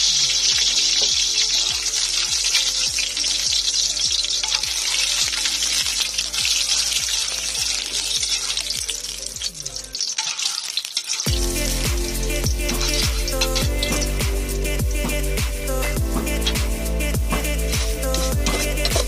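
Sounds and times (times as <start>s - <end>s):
music with thumping beat and bass: 0.1s - 9.6s, 11.3s - 19.0s
steady high hiss: 11.2s - 19.0s.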